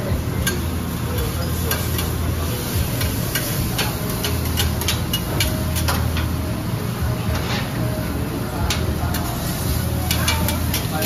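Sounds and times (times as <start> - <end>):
food sizzling on griddle: 0.0 - 7.8, 8.7 - 11.0
steady low hum: 0.0 - 11.0
metal spatula scraping and tapping: 3.0 - 6.3, 10.0 - 11.0.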